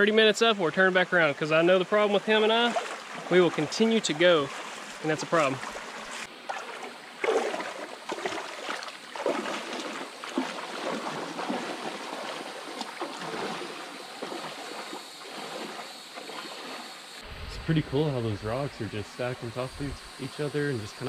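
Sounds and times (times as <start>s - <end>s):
stream rushing: 1.2s - 21.0s
feet splashing in shallow water: 1.5s - 17.2s.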